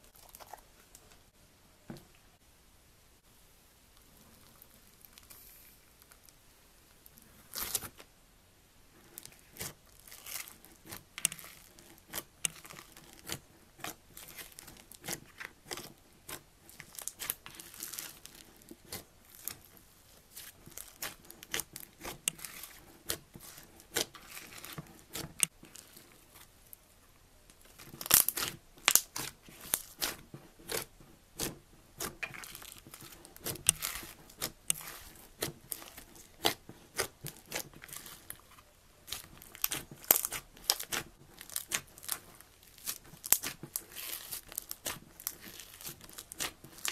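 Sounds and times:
slime popping and squelching: 9.2 - 26.5, 27.6 - 46.9.

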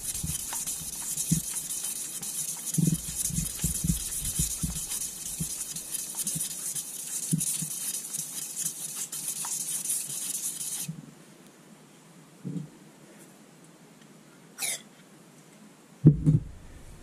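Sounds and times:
abrasive strip rubbing metal: 0.0 - 10.9
low knocks from strokes: 2.8 - 5.6.

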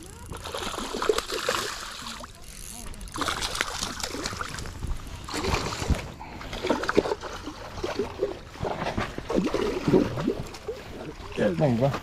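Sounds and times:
fish splashing in water: 0.1 - 2.4, 3.1 - 11.4.

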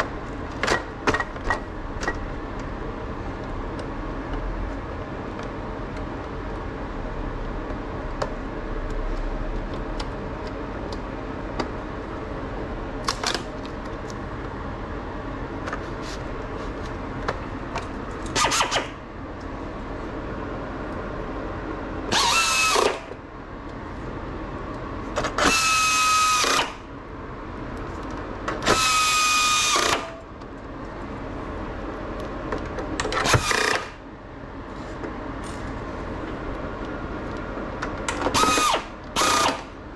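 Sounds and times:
steady hum: 0.0 - 39.9
power tool motor whirring: 18.4 - 19.0, 22.1 - 23.1, 25.4 - 26.8, 28.6 - 30.2, 33.2 - 34.0, 38.3 - 39.7.

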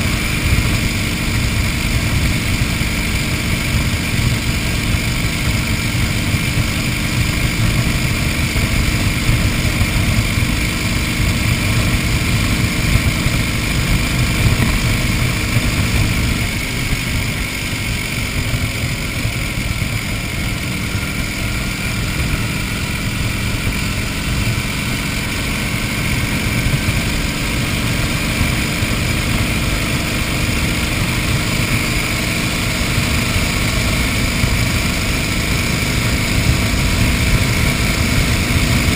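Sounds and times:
motorcycle engine cruising: 0.0 - 38.9.

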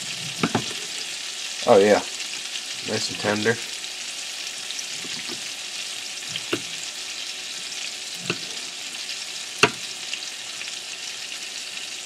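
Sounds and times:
meat sizzling in butter: 0.0 - 12.0
knife taps on cutting board: 9.6 - 9.8.

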